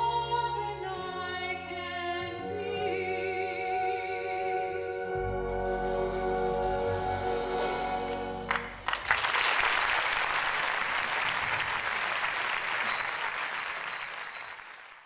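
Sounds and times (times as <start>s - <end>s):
large audience applauding: 8.5s - 15.0s.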